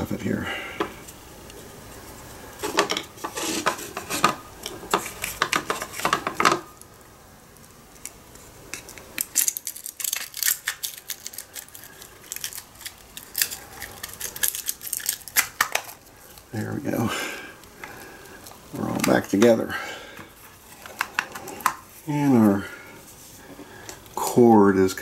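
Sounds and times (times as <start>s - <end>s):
small clicks and scrapes of housing: 2.6s - 6.6s, 20.7s - 21.8s.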